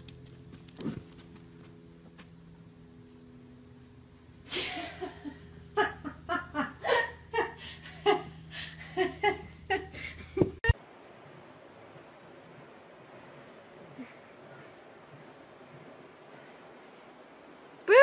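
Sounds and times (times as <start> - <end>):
person laughing hard: 4.5 - 10.7.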